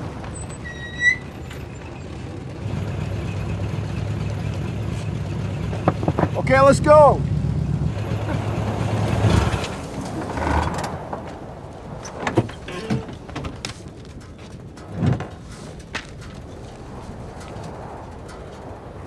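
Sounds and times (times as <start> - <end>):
car engine humming: 0.0 - 19.0
car door opening: 11.9 - 16.9.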